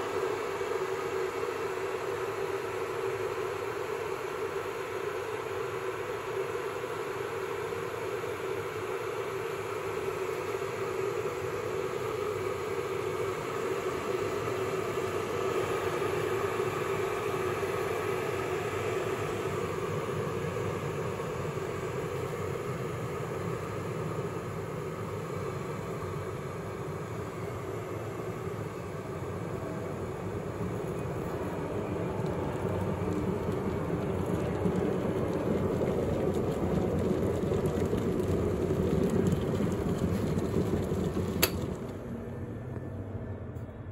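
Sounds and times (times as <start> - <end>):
electric kettle heating water: 0.0 - 43.9
kettle switch click: 41.4 - 41.6.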